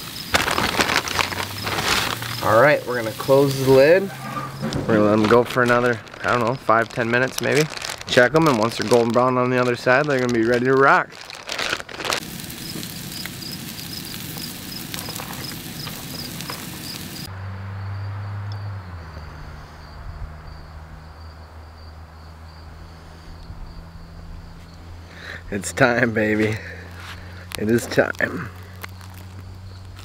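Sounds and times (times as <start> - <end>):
insect chirping: 0.0 - 9.0, 11.2 - 26.1, 26.8 - 30.0
outdoor background hiss: 0.0 - 10.1, 12.0 - 17.4.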